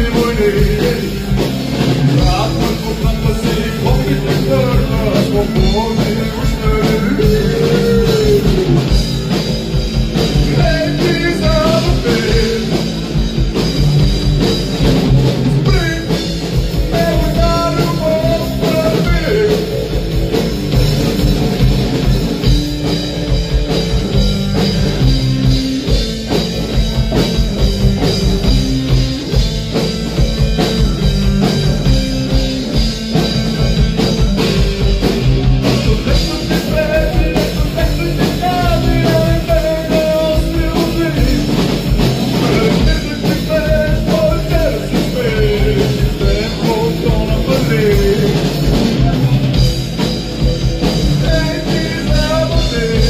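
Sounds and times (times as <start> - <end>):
man singing: 0.0 - 9.1, 10.2 - 13.0, 15.3 - 20.0, 35.3 - 49.6, 50.9 - 53.0
drum kit: 0.0 - 53.0
electric guitars: 0.0 - 53.0.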